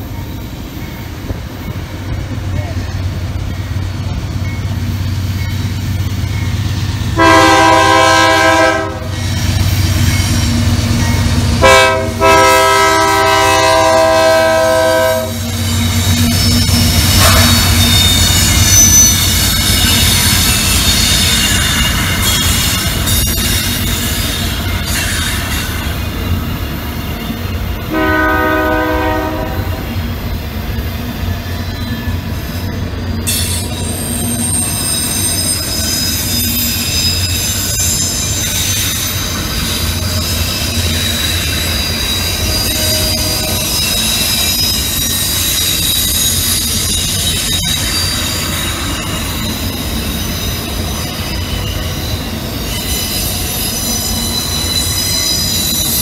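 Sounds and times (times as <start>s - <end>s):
freight train rumbling past: 0.0s - 56.0s
locomotive horn blast: 7.1s - 9.2s, 11.6s - 15.4s, 27.9s - 30.0s, 42.6s - 43.6s
wheels squealing: 15.3s - 27.8s, 30.5s - 56.0s.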